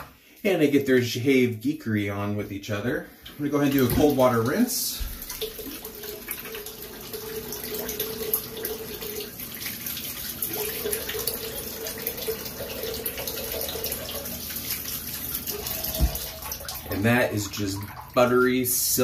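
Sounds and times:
water running from tap into sink: 3.5s - 19.0s
water splashing on face: 7.4s - 18.2s.

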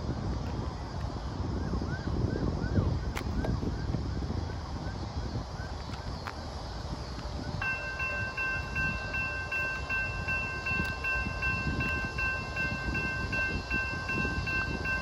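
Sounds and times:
steady low rumble: 0.0s - 15.0s
railroad crossing bell ringing: 7.6s - 15.0s.

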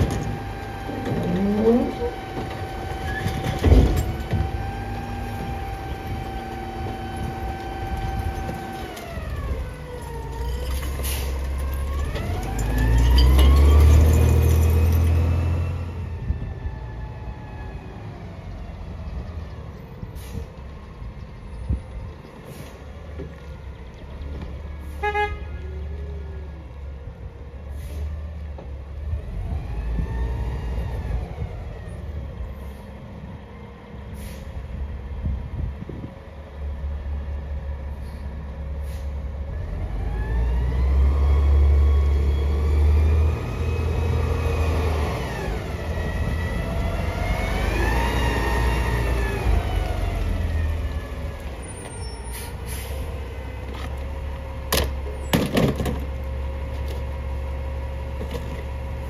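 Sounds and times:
garbage truck engine rumbling: 0.0s - 59.0s
air brakes hissing: 20.1s - 20.5s, 34.1s - 34.6s, 37.9s - 39.2s, 51.7s - 53.2s.

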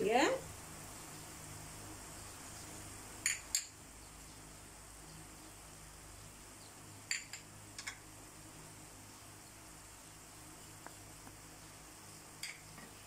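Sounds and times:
sizzling in a frying pan: 0.0s - 13.0s
spoon and bowls clicking on pan: 3.2s - 3.8s, 7.1s - 8.0s, 12.4s - 12.9s.

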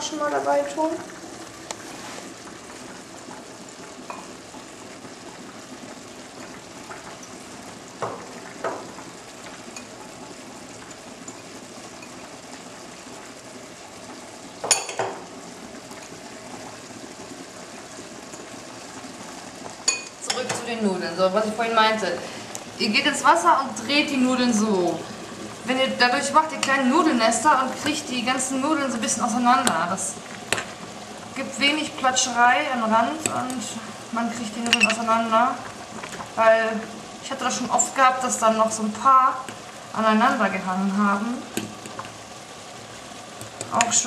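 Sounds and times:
meat sizzling in a pot: 0.0s - 44.0s
utensils clinking on a pot: 19.8s - 20.6s, 34.6s - 35.0s.

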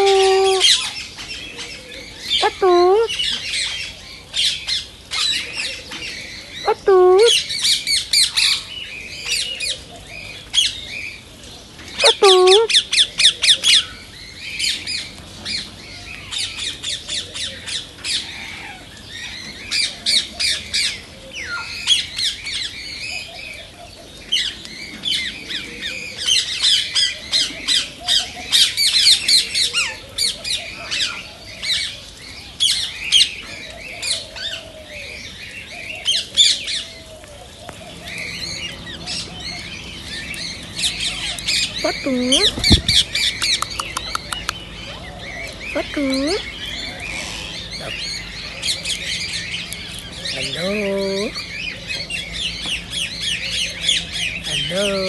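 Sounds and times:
parakeet squawking and chattering: 0.0s - 1.0s, 2.2s - 3.4s, 6.6s - 7.5s, 12.0s - 13.0s, 38.0s - 55.0s.

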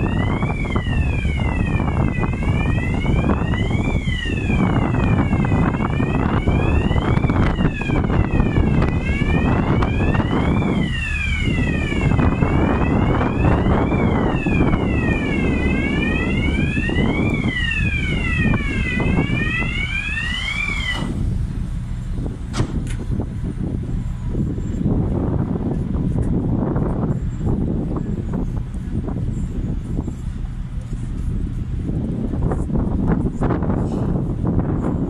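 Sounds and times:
wailing siren: 0.0s - 21.4s
steady low rumble: 0.0s - 35.0s.

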